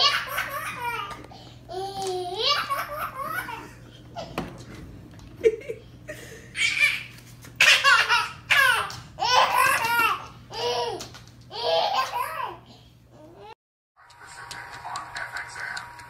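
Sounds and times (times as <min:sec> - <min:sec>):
baby laughing: 0:00.0 - 0:04.4, 0:06.5 - 0:12.6.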